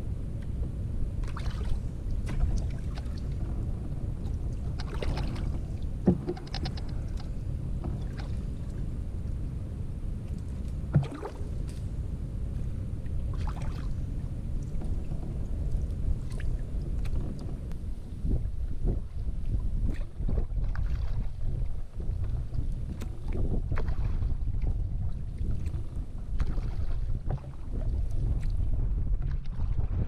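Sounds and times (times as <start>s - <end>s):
low wind rumble: 0.0s - 30.0s
paddle water swishing and dripping: 1.2s - 8.9s, 10.2s - 11.9s, 12.5s - 30.0s
paddle knocking against canoe: 2.2s - 8.4s, 10.9s - 11.4s.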